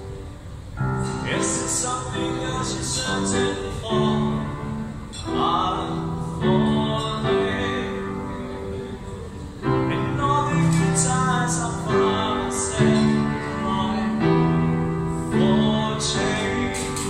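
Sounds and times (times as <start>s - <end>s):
piano accompaniment: 0.0s - 17.0s
man singing: 1.0s - 17.0s.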